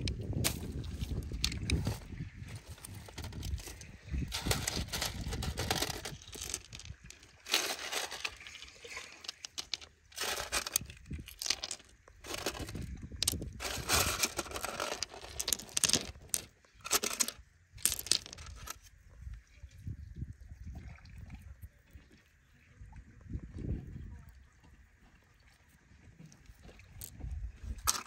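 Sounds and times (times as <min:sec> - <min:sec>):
stones knocking together: 0:00.0 - 0:18.8, 0:27.8 - 0:28.0.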